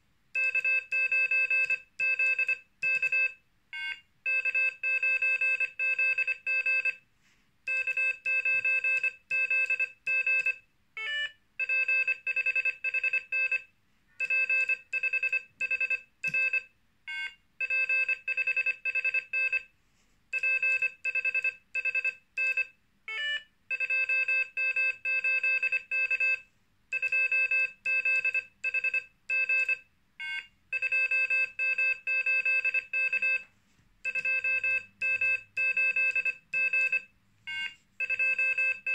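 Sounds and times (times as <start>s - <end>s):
morse code beeping: 7.7s - 19.6s, 20.4s - 33.4s, 34.0s - 38.9s.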